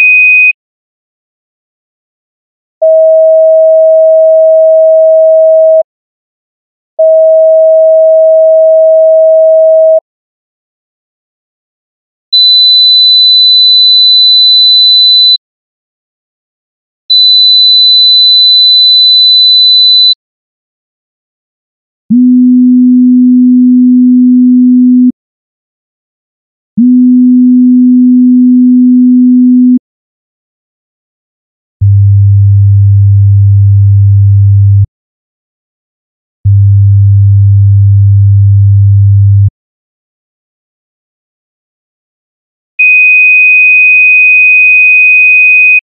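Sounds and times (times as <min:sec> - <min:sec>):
low sine-wave test tone: 0:22.1 - 0:25.1, 0:26.8 - 0:29.8.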